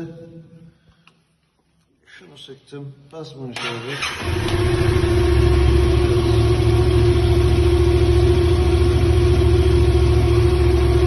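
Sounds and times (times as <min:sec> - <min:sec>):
motorcycle engine idling: 0:04.4 - 0:11.0.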